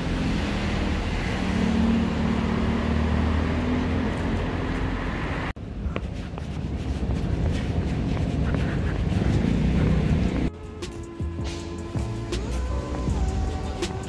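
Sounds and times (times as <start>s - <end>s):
vehicle engine running nearby: 0.0s - 5.8s, 8.6s - 10.5s
street traffic noise: 0.0s - 14.0s.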